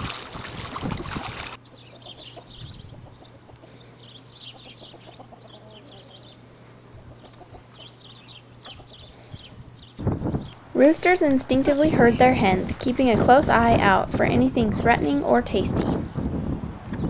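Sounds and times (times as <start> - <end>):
duck splashing in water: 0.0 - 1.6
high chirping calls: 1.6 - 6.4, 7.2 - 10.6
chickens clucking: 1.6 - 9.9.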